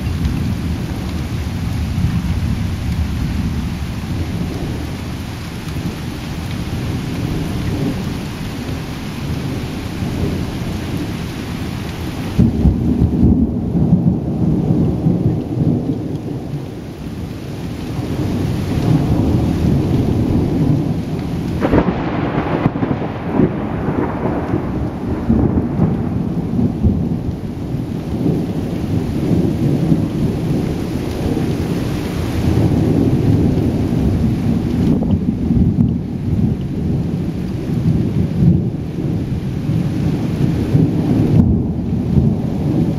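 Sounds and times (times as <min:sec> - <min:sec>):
steady rain: 0:00.0 - 0:42.9
thunder rumbling: 0:00.0 - 0:42.9
sharp thunderclap: 0:12.4 - 0:16.4, 0:21.6 - 0:31.7, 0:32.4 - 0:37.2, 0:39.7 - 0:42.9.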